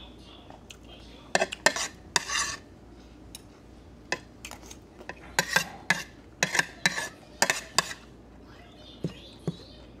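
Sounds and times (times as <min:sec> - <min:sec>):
cutlery clinking on plate: 0:04.2 - 0:08.0.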